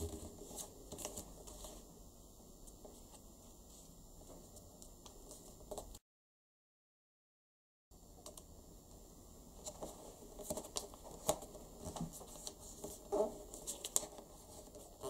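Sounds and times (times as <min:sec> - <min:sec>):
paper being folded and creased: 0:09.6 - 0:15.0.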